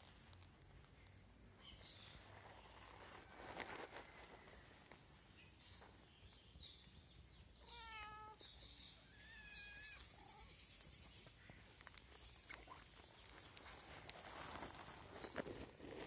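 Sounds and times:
cats meowing faintly: 0:07.5 - 0:11.9.

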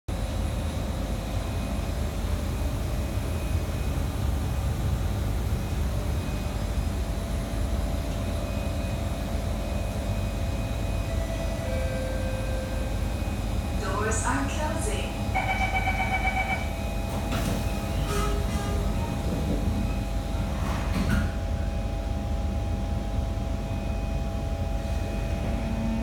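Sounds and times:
train wheels rumbling: 0:10.0 - 0:21.5.

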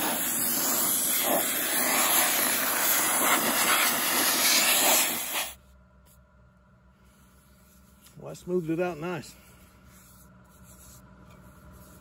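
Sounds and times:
sandblaster hissing: 0:00.0 - 0:05.6.

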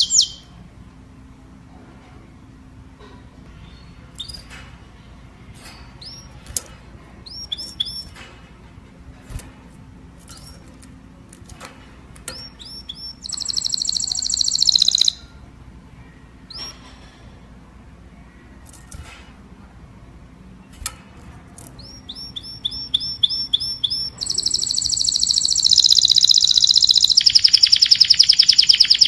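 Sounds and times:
canary chirping and trilling: 0:00.0 - 0:00.6, 0:03.5 - 0:08.4, 0:10.2 - 0:10.8, 0:11.4 - 0:15.5, 0:16.2 - 0:17.0, 0:20.7 - 0:29.0.

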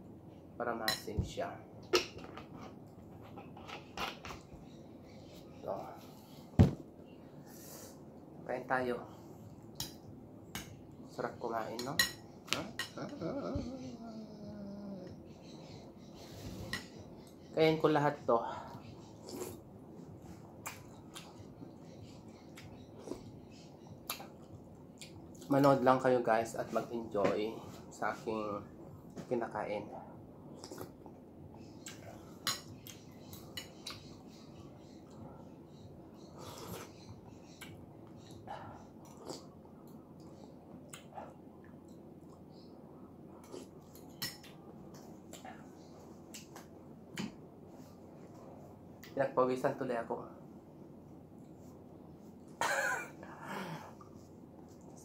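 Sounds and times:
person chewing: 0:39.0 - 0:39.6.

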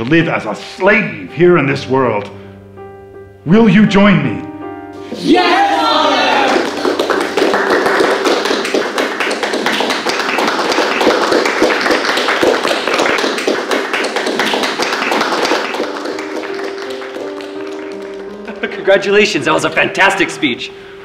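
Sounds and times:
group of people applauding: 0:05.2 - 0:19.6.

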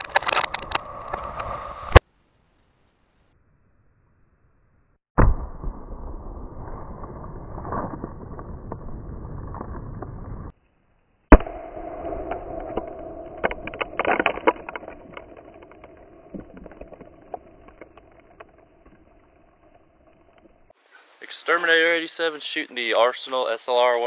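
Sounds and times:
outdoor noise: 0:00.0 - 0:24.0
loud sharp bang: 0:11.3 - 0:13.5
scattered clicks: 0:12.3 - 0:20.5.

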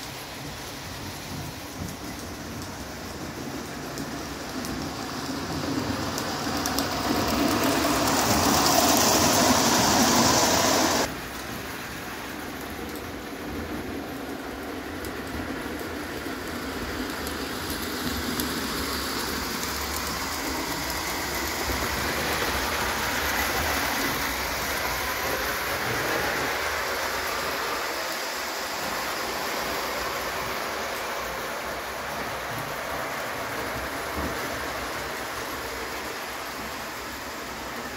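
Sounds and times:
model train rushing and rattling: 0:00.0 - 0:37.9.

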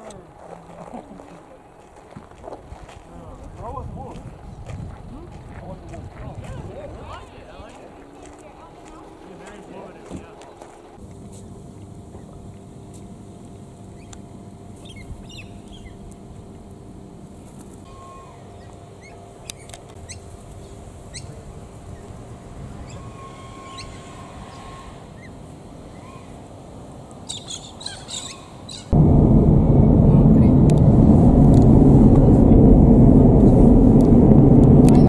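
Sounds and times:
steady low hum: 0:00.0 - 0:27.0, 0:28.8 - 0:35.0
cockatoos chirping and calling: 0:22.8 - 0:26.4, 0:27.3 - 0:29.0.

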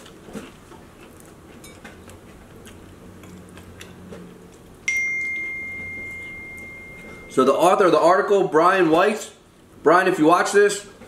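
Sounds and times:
chewing food: 0:00.0 - 0:04.9
faint low hum: 0:00.0 - 0:08.6.

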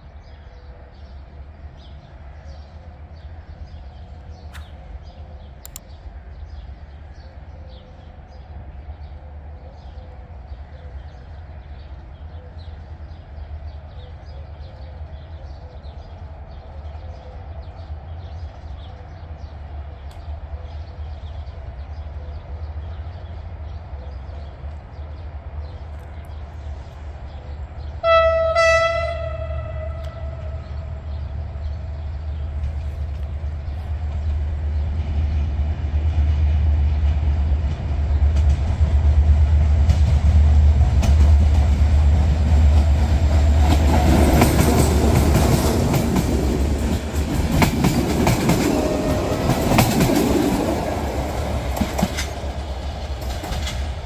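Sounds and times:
diesel locomotive rumbling: 0:00.0 - 0:54.0
locomotive horn blast: 0:28.0 - 0:30.9.

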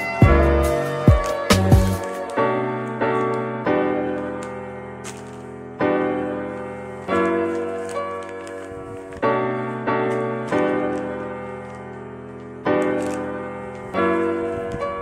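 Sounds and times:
slow piano chords: 0:00.0 - 0:15.0.

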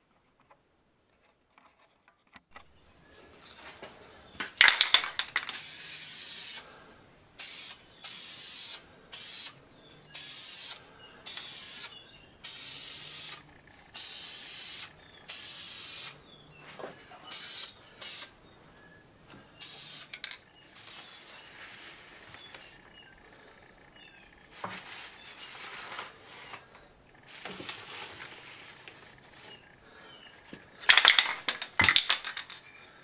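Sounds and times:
aerosol can spraying: 0:04.6 - 0:06.6, 0:07.4 - 0:09.6, 0:10.2 - 0:16.2, 0:17.3 - 0:18.3, 0:19.6 - 0:20.1, 0:20.7 - 0:21.4.

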